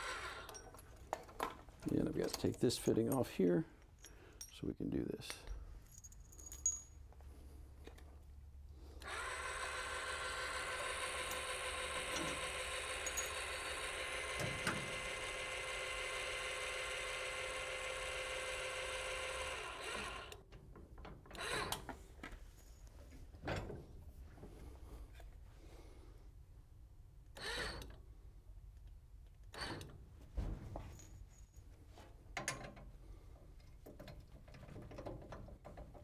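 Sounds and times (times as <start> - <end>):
clicks and knocks of parts handled: 0.5 - 4.6
small electric motor whirring: 9.0 - 20.4.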